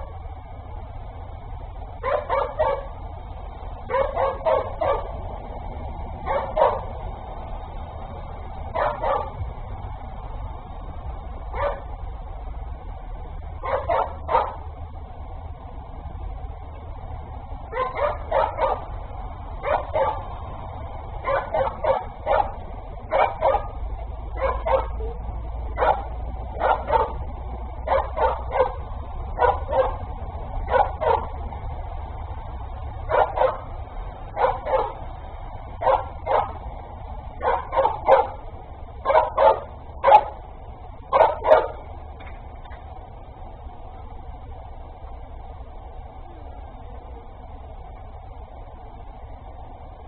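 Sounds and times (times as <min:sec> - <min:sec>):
dog barking: 0:02.0 - 0:03.0, 0:03.9 - 0:05.2, 0:06.2 - 0:06.9, 0:08.7 - 0:09.4, 0:11.5 - 0:11.9, 0:13.6 - 0:14.6, 0:17.7 - 0:18.9, 0:19.6 - 0:20.3, 0:21.2 - 0:23.8, 0:24.4 - 0:25.2, 0:25.8 - 0:27.2, 0:27.8 - 0:30.0, 0:30.7 - 0:31.3, 0:33.1 - 0:33.7, 0:34.4 - 0:35.0, 0:35.8 - 0:36.6, 0:37.4 - 0:38.4, 0:39.0 - 0:40.4, 0:41.1 - 0:41.8.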